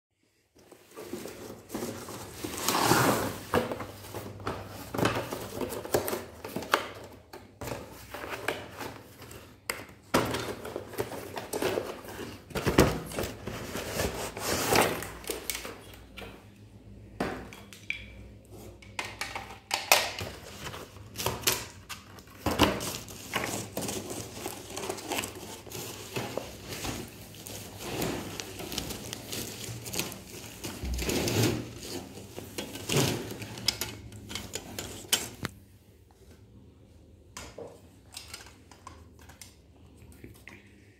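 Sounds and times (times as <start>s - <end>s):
cardboard rustling and scraping: 0.6s - 6.8s, 10.2s - 15.2s, 22.2s - 33.8s.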